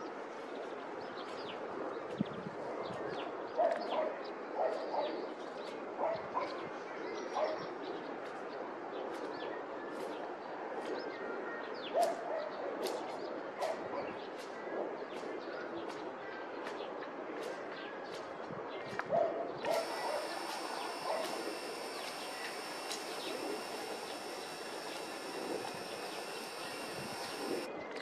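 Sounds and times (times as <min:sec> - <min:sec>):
dog barking: 0:03.6 - 0:05.2, 0:06.0 - 0:06.6, 0:12.0 - 0:12.6
small birds chirping: 0:19.7 - 0:27.7
steady background hiss: 0:19.8 - 0:27.7.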